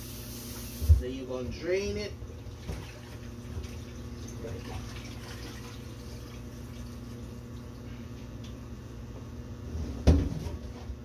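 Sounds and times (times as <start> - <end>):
water draining into a steel sink: 2.4 - 7.8.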